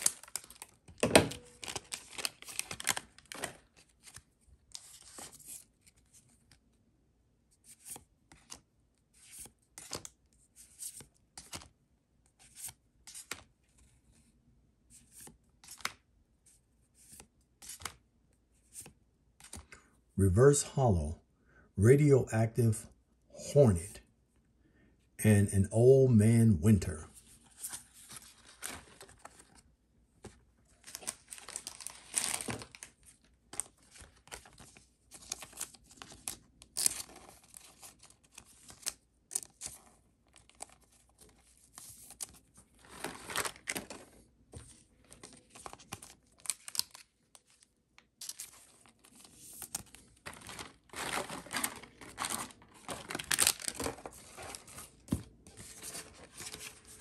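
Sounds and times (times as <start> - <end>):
foil wrapper crinkling: 0.0 - 3.7, 30.8 - 32.9, 50.3 - 54.7.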